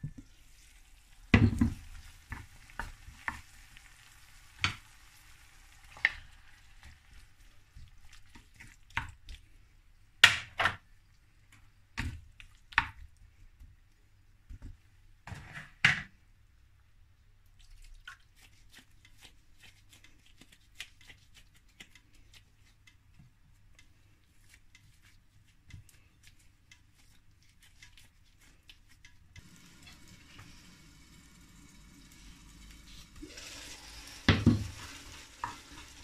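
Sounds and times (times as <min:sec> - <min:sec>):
wet squishes of hands shaping meat: 0:00.4 - 0:10.2, 0:10.8 - 0:15.1, 0:16.8 - 0:30.6
wooden spoon knocking on clay pot: 0:01.4 - 0:01.8.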